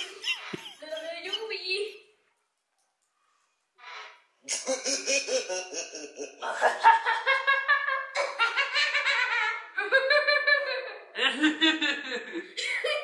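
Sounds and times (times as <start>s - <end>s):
children laughing and giggling: 0.0s - 2.0s, 4.5s - 13.0s.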